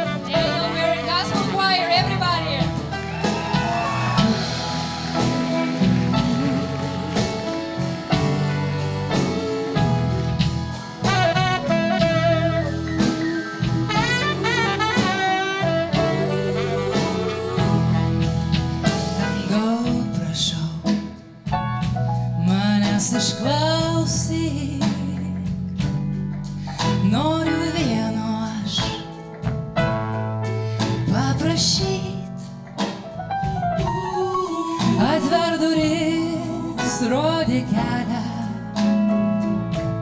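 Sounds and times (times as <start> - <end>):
saxophone: 0.0 - 19.5
drum kit: 0.0 - 40.0
electric guitar: 0.0 - 40.0.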